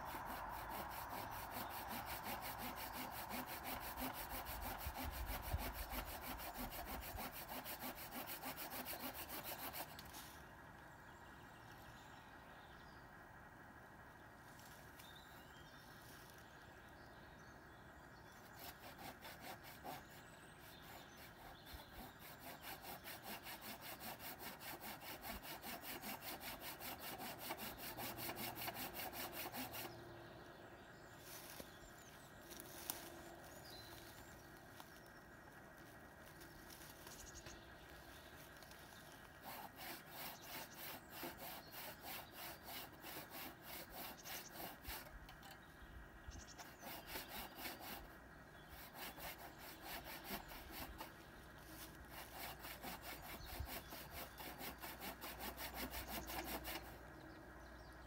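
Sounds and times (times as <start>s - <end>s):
hand saw cutting branch: 0.0s - 10.4s, 18.4s - 30.0s, 32.4s - 35.0s, 38.4s - 45.6s, 46.6s - 57.0s.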